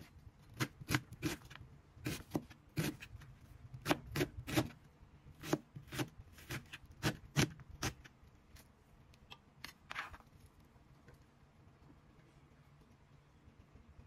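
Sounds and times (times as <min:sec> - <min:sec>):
knife chopping on cutting board: 0:03.8 - 0:04.7, 0:05.4 - 0:08.0.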